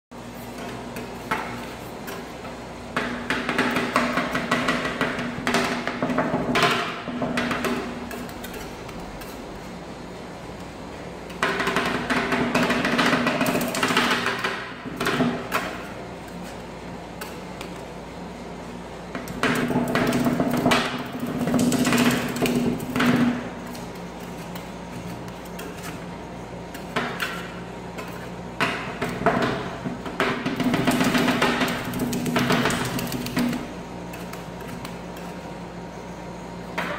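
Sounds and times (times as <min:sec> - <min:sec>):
metal spatulas chopping on steel: 0:06.6 - 0:09.4, 0:19.3 - 0:26.0.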